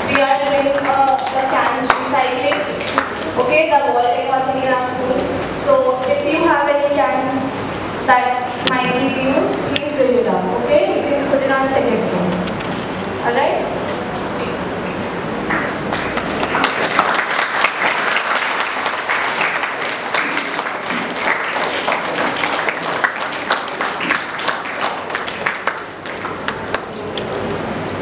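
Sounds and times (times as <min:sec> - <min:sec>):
children applauding: 0:00.0 - 0:03.4, 0:15.9 - 0:27.0.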